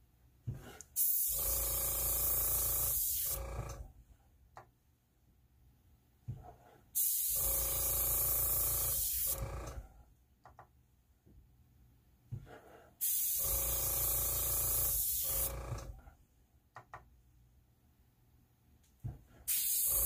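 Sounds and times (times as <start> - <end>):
air compressor humming: 0.5 - 3.9, 7.0 - 9.9, 13.0 - 16.0, 19.0 - 20.0
airbrush hissing: 7.0 - 7.5, 8.9 - 9.4, 13.0 - 13.6, 14.8 - 15.5, 19.5 - 20.0.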